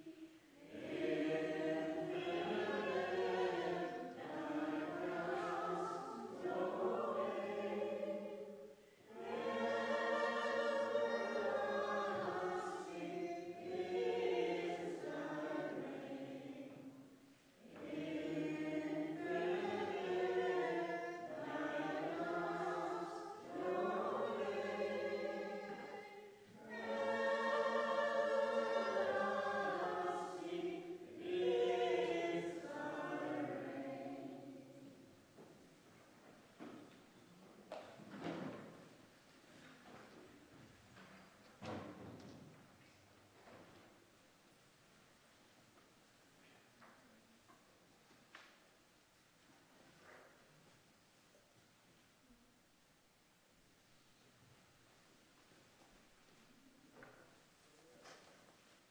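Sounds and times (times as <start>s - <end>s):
choir singing: 0.0s - 35.2s.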